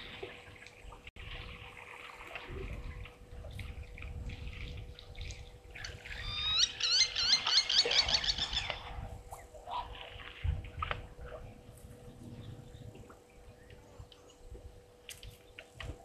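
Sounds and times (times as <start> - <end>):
bird calling sharp high notes: 6.2 - 8.8.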